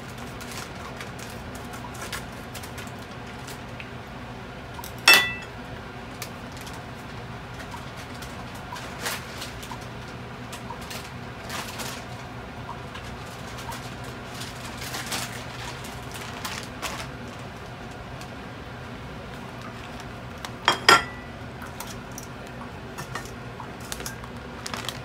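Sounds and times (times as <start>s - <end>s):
low steady hum: 0.0s - 25.0s
scissors clinking on countertop: 5.1s - 5.5s, 20.7s - 21.3s.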